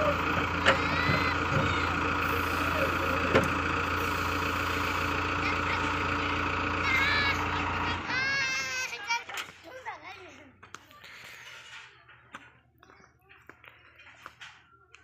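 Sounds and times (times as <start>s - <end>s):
diesel engine running: 0.0s - 11.9s.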